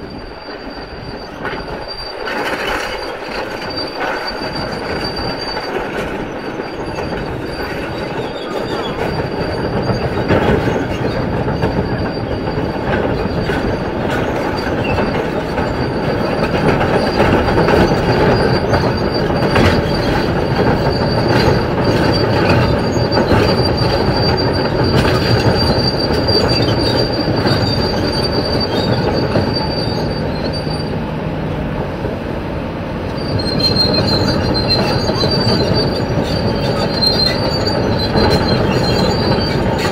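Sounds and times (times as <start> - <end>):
excavator tracks squealing: 0.0 - 39.9
excavator tracks clanking: 0.1 - 39.9.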